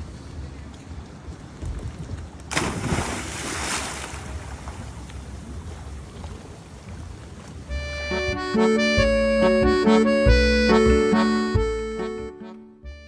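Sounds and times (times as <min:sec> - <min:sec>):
person splashing into water: 0:02.5 - 0:05.1
water churning: 0:02.5 - 0:07.4.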